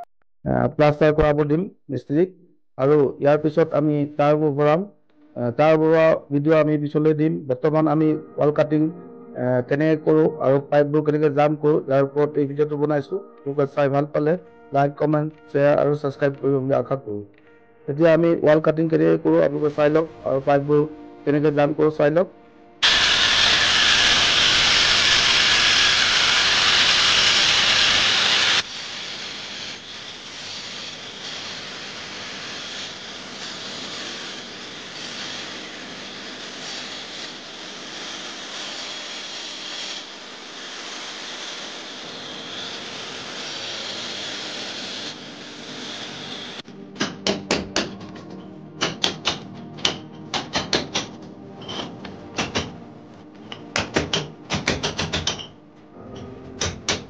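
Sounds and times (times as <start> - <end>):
electric grinder cutting brick: 22.8 - 46.6
hammer striking chisel: 47.0 - 52.8, 53.5 - 55.5, 56.1 - 57.0.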